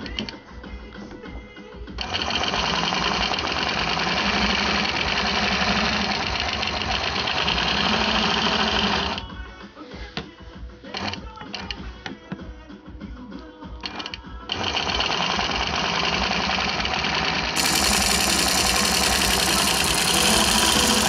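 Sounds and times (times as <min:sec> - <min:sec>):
quilting machine needle stitching: 0:02.1 - 0:09.2, 0:13.9 - 0:21.0.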